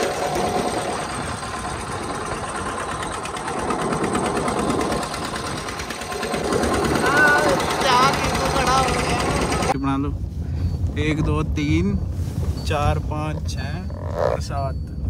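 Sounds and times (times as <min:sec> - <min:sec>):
tractor engine chugging: 0:00.0 - 0:09.8.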